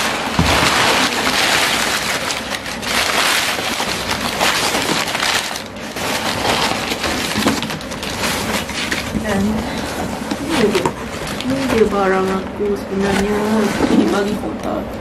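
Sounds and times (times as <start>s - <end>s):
packing paper crinkling: 0.0s - 14.4s.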